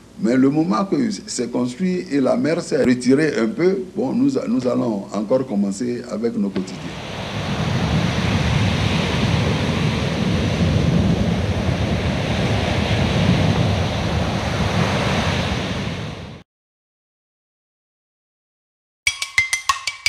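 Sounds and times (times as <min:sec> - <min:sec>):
sea waves breaking: 0:06.6 - 0:16.4.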